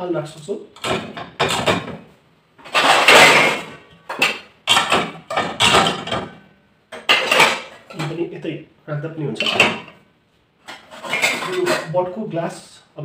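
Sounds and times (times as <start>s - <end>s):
plates clattering against wire rack: 2.6s - 8.2s, 9.3s - 10.0s, 10.7s - 12.0s.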